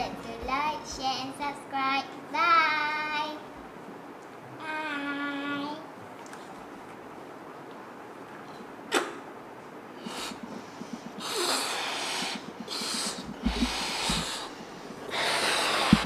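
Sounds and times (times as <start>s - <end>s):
breath puffs into balloons: 10.0s - 16.0s.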